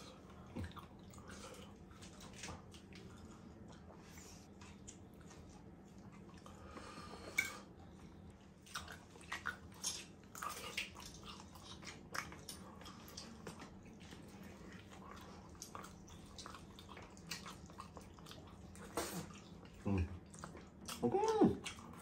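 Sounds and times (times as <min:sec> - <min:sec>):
person chewing food: 0:00.0 - 0:22.0.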